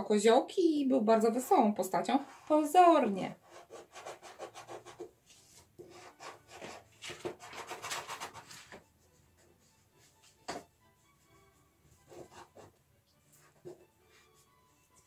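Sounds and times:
crayon scraping on paper: 2.0 - 2.7, 3.4 - 8.8, 11.9 - 13.9.

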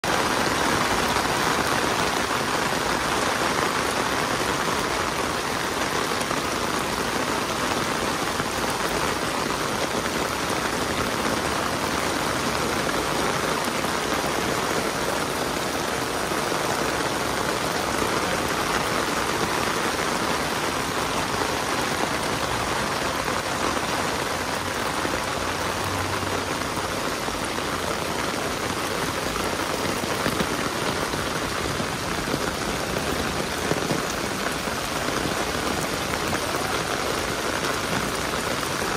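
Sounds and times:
heavy rain on a street: 0.0 - 38.9.

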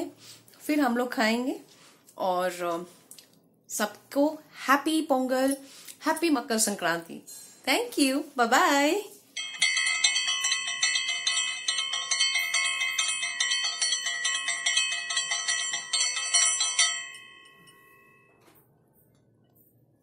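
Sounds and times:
hand bell ringing rapidly: 9.4 - 18.3.

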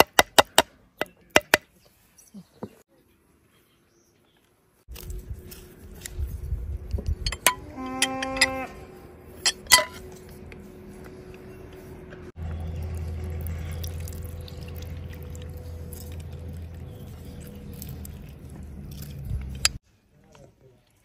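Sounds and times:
juice dripping into wooden bowl: 12.9 - 19.8.

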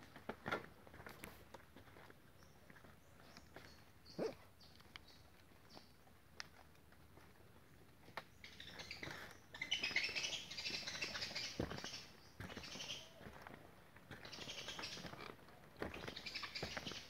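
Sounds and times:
birds chirping: 2.4 - 6.0, 7.6 - 13.4, 14.1 - 15.2, 15.9 - 17.0.

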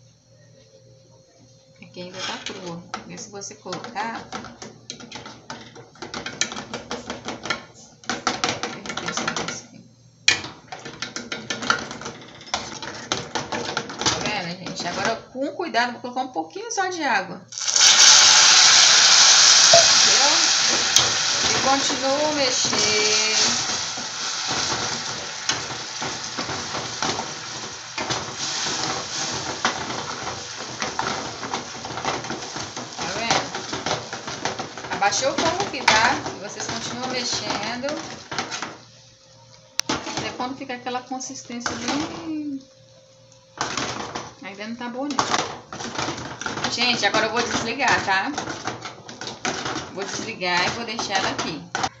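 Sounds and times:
caramel sizzling in a pan: 1.8 - 15.5, 17.5 - 52.0
spoon scraping a metal pan: 2.0 - 2.7.

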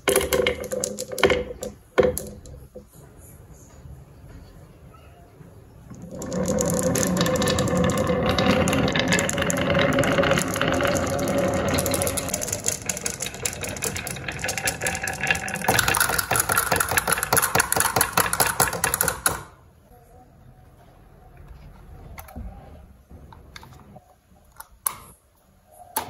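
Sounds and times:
marbles tipping out of toy truck: 0.0 - 2.6, 5.9 - 19.5
marbles rolling on wooden track: 0.0 - 2.8, 5.9 - 19.6.

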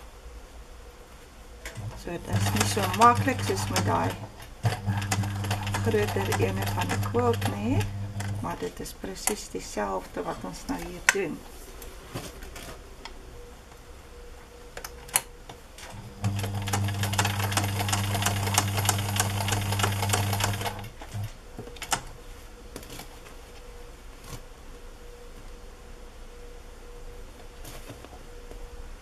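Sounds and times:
sewing machine running: 1.7 - 8.7, 15.8 - 21.3.

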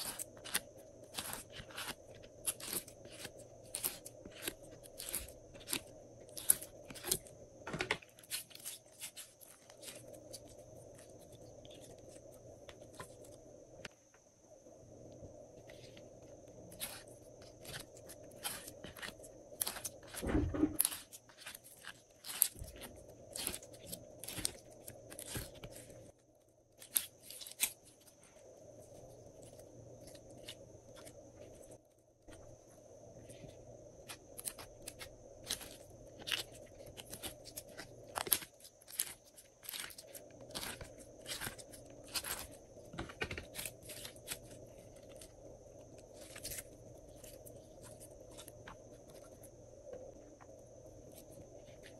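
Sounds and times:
slime squelch: 0.0 - 13.9, 15.6 - 49.5
faint steady hum: 0.0 - 51.9
sticky slime crackles and clicks: 34.0 - 42.6.

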